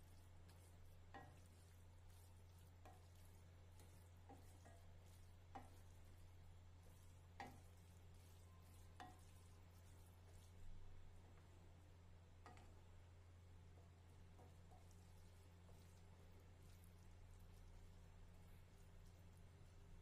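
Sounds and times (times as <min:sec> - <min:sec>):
low steady hum: 0:00.0 - 0:20.0
spatula scraping a steel pan: 0:00.5 - 0:10.5.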